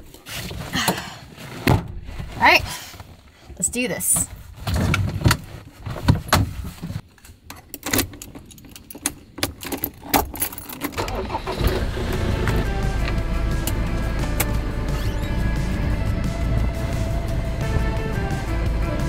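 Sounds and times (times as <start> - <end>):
keys jangling: 7.8 - 11.0
car engine starting and running: 10.8 - 19.0.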